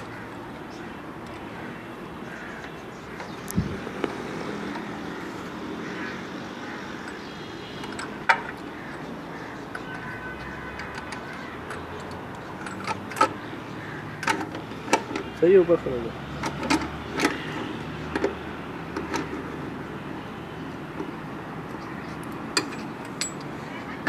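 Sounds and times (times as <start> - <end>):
hand tools clinking on metal: 22.6 - 23.6.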